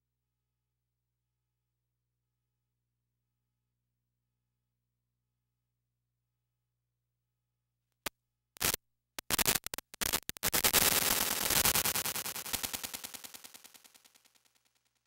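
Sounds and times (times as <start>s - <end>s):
sharp clicks: 8.6s - 14.4s
rapid stuttering rattle: 8.6s - 15.0s.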